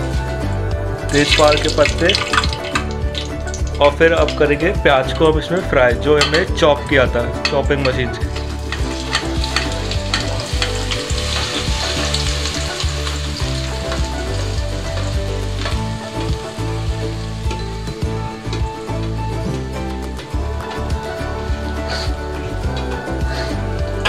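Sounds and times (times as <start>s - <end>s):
onions sizzling in hot oil: 1.1s - 3.7s, 8.1s - 19.2s.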